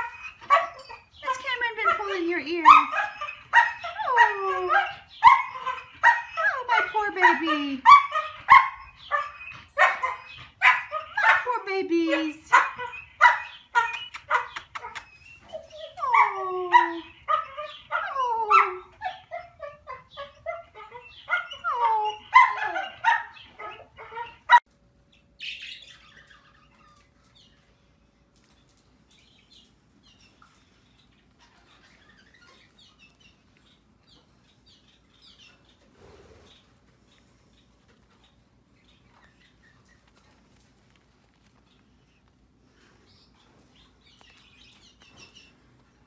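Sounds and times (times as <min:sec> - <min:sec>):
dog whining and yelping: 0:00.0 - 0:11.5, 0:12.5 - 0:24.6.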